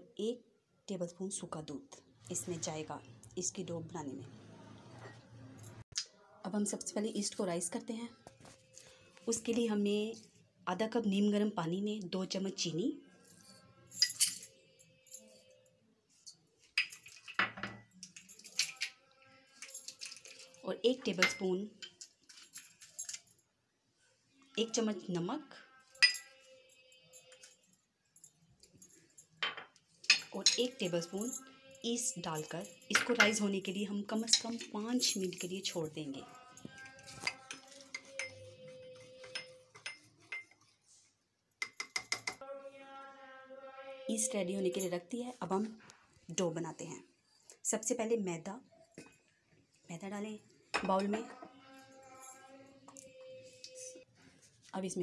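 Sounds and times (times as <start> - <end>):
spoon clinking against ceramic mug: 14.0 - 14.5, 16.8 - 19.0, 19.6 - 23.2, 26.0 - 26.4, 29.4 - 31.7, 32.4 - 35.7, 36.3 - 40.7, 41.6 - 42.4.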